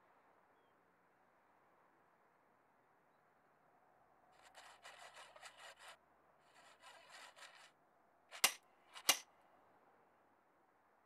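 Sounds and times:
rapid ratcheting clicks: 8.4s - 9.2s
sharp knob clicks: 8.4s - 9.2s.

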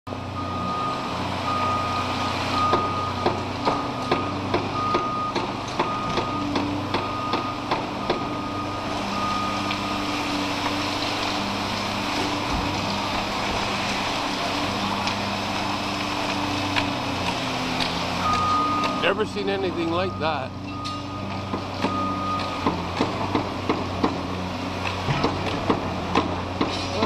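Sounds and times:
excavator diesel engines running: 0.1s - 27.0s
backup alarm beeping: 0.4s - 3.4s, 4.1s - 10.2s, 18.2s - 22.8s.

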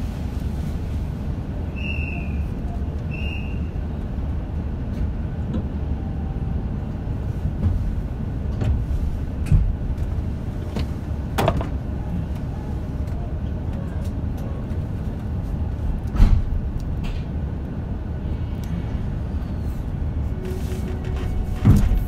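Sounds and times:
train interior rumble: 0.0s - 22.0s.

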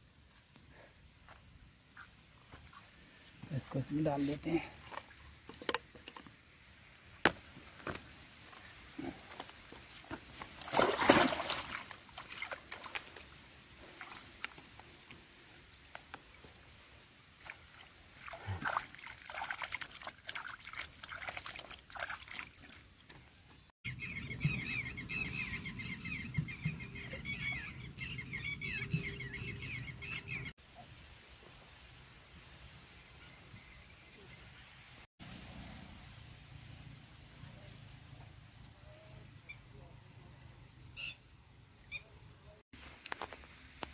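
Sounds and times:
water splashing: 10.0s - 15.3s, 16.3s - 23.5s.

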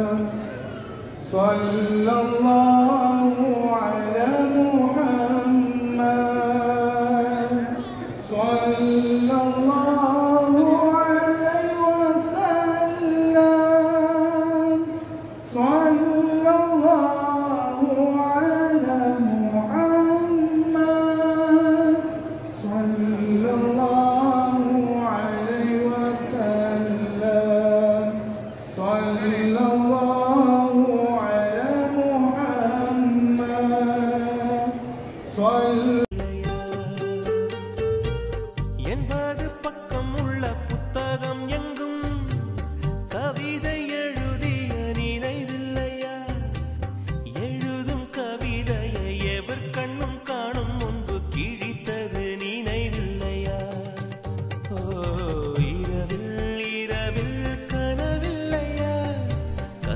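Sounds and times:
person singing slow melody: 0.0s - 59.9s
breaths: 0.4s - 1.2s, 46.9s - 47.2s.

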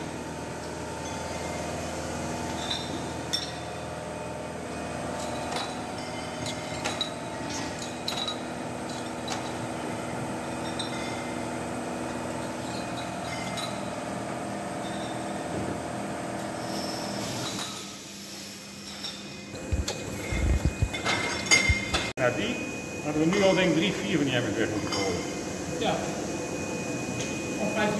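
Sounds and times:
bottle filling machine humming: 0.0s - 27.9s
glass bottles clinking: 1.0s - 1.8s, 2.5s - 3.9s, 5.1s - 14.0s, 14.7s - 15.4s, 20.3s - 22.1s, 24.8s - 25.4s.

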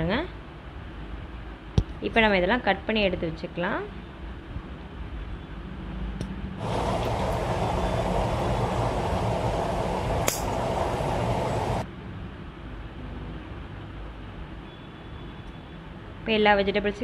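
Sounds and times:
low hum: 6.6s - 11.8s
steady rushing noise: 6.6s - 11.9s.

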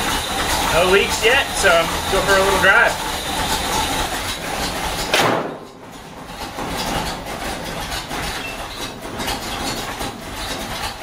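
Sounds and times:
engine idling: 0.0s - 11.0s
car hood slamming shut: 5.1s - 5.6s.

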